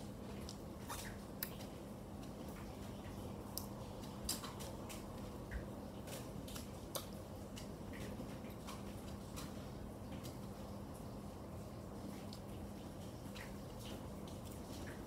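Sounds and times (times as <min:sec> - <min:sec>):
mouth clicks and smacks chewing: 0:00.4 - 0:08.9.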